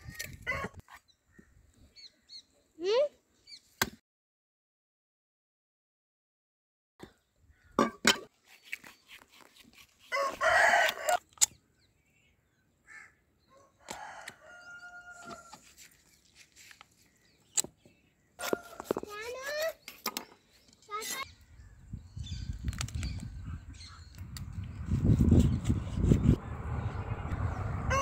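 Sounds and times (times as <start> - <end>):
rooster crowing: 10.1 - 11.2, 13.5 - 15.5, 27.6 - 28.0.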